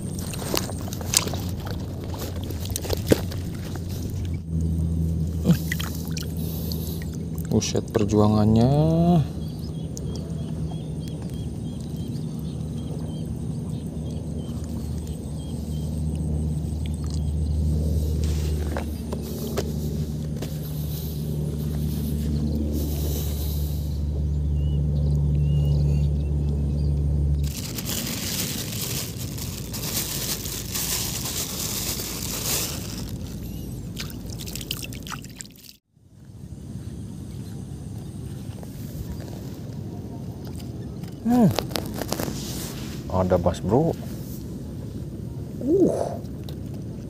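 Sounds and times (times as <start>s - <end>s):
plastic bag rustling: 0.0s - 4.4s, 27.4s - 35.3s, 41.2s - 43.1s
wet squishing with squeaks: 0.0s - 4.4s, 27.4s - 35.8s, 40.5s - 42.4s
small engine droning: 0.0s - 34.7s.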